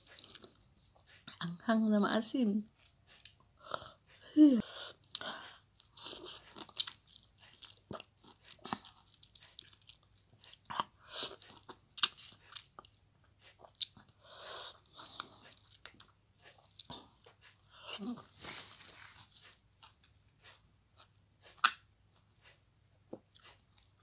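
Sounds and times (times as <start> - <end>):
person chewing lemon: 0.0 - 1.4, 2.7 - 24.0
mouth smacks and clicks: 10.4 - 14.0, 21.5 - 21.8.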